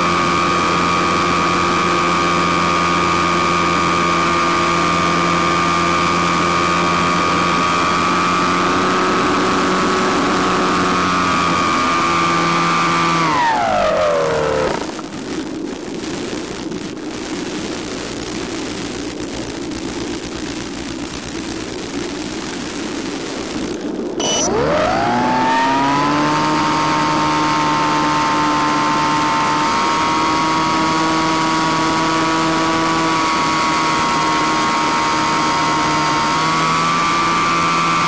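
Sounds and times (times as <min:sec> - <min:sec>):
electric motor and propeller whining: 0:00.0 - 0:15.1, 0:24.2 - 0:38.0.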